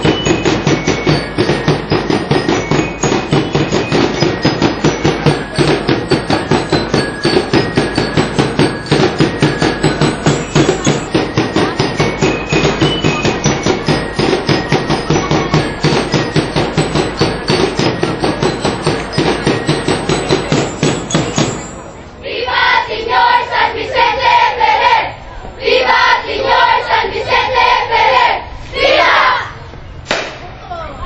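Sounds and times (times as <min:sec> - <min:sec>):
drums beating fast rhythm: 0:00.0 - 0:24.8
group of voices chanting: 0:22.2 - 0:29.6.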